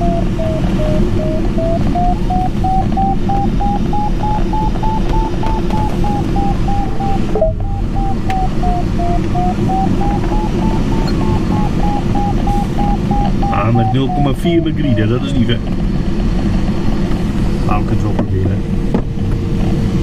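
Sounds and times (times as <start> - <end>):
variometer beeping: 0.0 - 15.5
cockpit airflow noise: 0.0 - 20.0.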